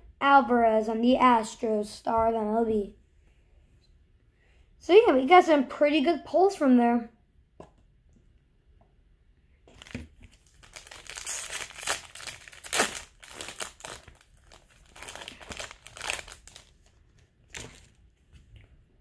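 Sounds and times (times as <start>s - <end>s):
foil wrapper crinkling: 9.7s - 18.0s.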